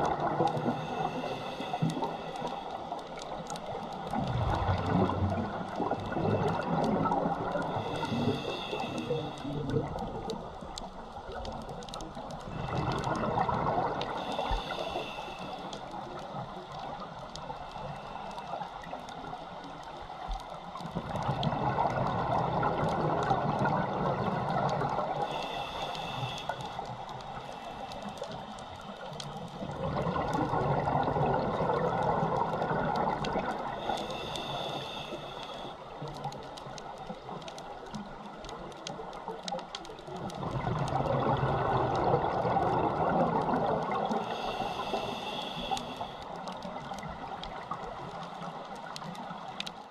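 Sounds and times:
fine crackling clicks: 0:00.0 - 0:49.9
hissing inhale through regulator: 0:00.2 - 0:04.2, 0:05.6 - 0:10.2, 0:12.4 - 0:19.6, 0:23.6 - 0:36.3, 0:40.9 - 0:49.8
bubbling exhalations underwater: 0:40.4 - 0:44.1.

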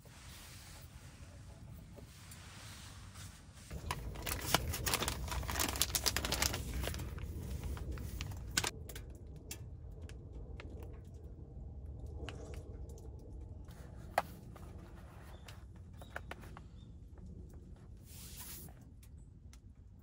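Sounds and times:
packaging crinkling and rustling: 0:03.7 - 0:08.7.

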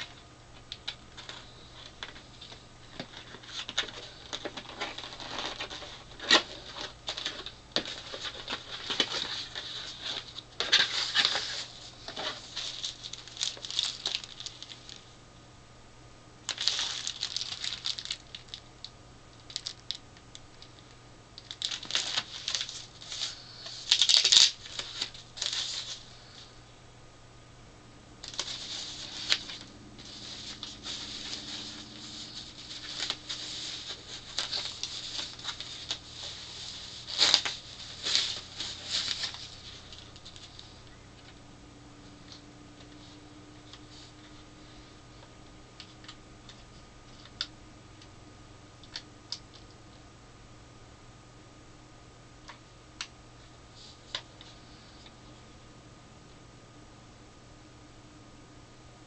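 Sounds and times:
faint steady hum: 0:00.0 - 0:59.0
packaging rustling and crinkling: 0:00.8 - 0:15.1, 0:16.5 - 0:18.7, 0:19.4 - 0:26.4, 0:28.2 - 0:41.4.

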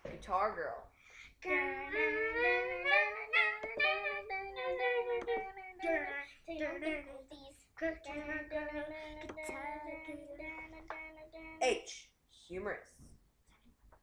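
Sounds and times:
high singing voice: 0:01.3 - 0:11.7.

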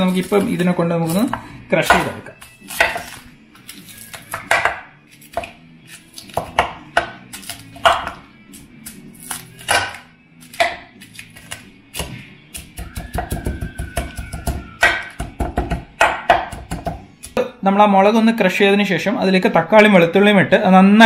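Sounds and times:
chillies cracking: 0:00.0 - 0:15.2
background music: 0:00.0 - 0:21.0
metal pestle knocking ceramic bowl: 0:12.8 - 0:17.0.

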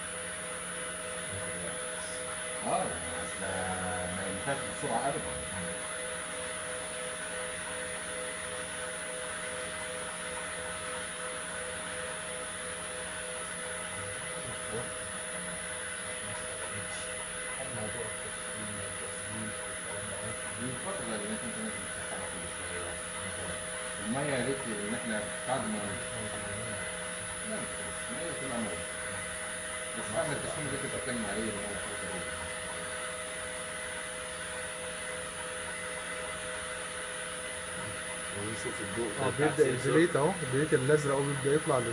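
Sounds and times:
water pumps humming: 0:00.0 - 0:41.9.

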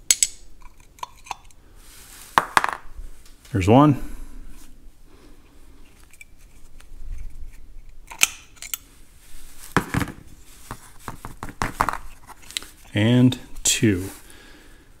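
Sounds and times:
metal part knocking and clicking: 0:00.0 - 0:01.5
screwdriver metal clicks and scrapes: 0:00.1 - 0:01.6, 0:05.9 - 0:08.8.

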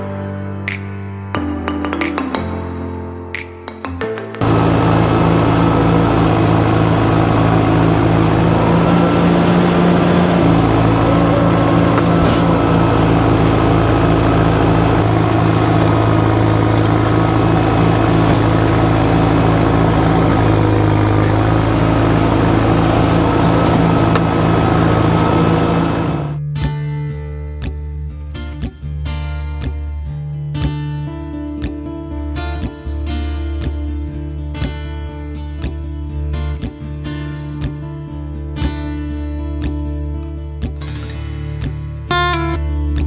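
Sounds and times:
bulldozer engine running: 0:04.4 - 0:26.4.

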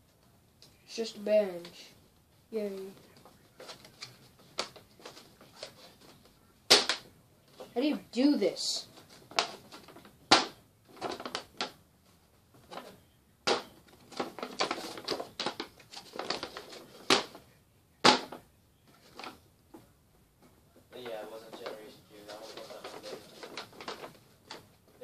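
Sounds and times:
paper rustling and crinkling: 0:02.9 - 0:07.6, 0:08.8 - 0:17.5, 0:21.0 - 0:25.0.

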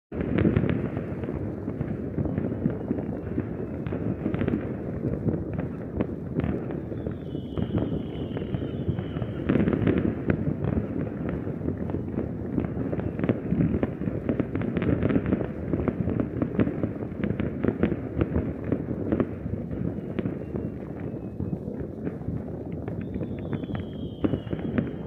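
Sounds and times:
fireworks crackling and banging: 0:00.1 - 0:25.0
high falling whistle: 0:06.8 - 0:09.6, 0:23.0 - 0:25.0.

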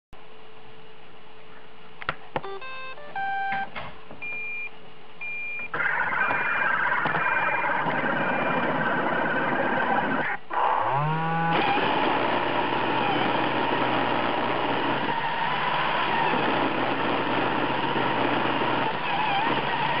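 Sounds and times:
electronic tune: 0:02.4 - 0:03.7
short beeps: 0:02.4 - 0:05.7
vacuum motor whirring: 0:07.0 - 0:20.0.

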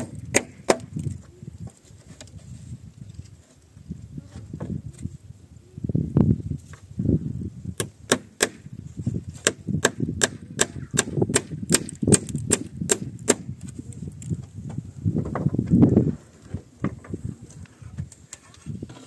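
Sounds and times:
handling knocks and shuffling: 0:00.9 - 0:05.1.

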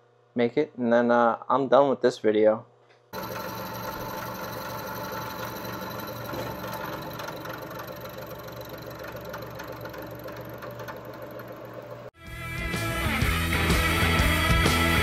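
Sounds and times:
milling machine cutting metal: 0:03.2 - 0:12.1.

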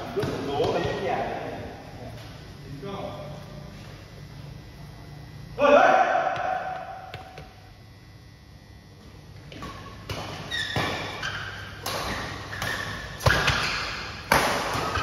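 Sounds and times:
racket hitting shuttlecock: 0:09.5 - 0:15.0.

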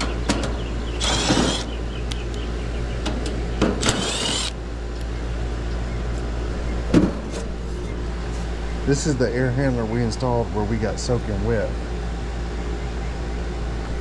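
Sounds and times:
cordless drill whirring: 0:01.0 - 0:01.7, 0:03.8 - 0:04.6.

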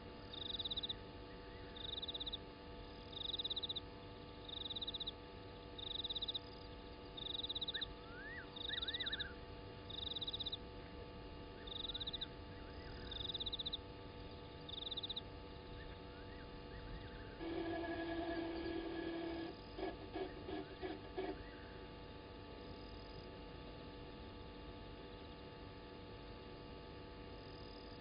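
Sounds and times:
faint steady hum: 0:00.0 - 0:28.0
high pulsed animal chirp: 0:00.3 - 0:02.5, 0:03.1 - 0:03.8, 0:04.4 - 0:05.2, 0:05.8 - 0:10.7, 0:11.5 - 0:17.4.

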